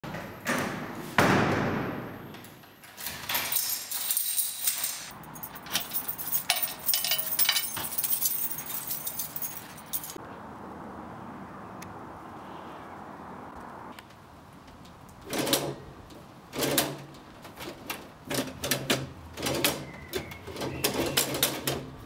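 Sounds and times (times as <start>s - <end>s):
keys jangling in a lock: 2.8s - 10.2s.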